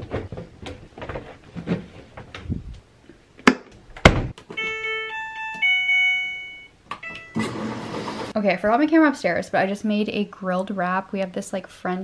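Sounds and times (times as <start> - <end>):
washer control panel beeping: 4.6 - 8.3.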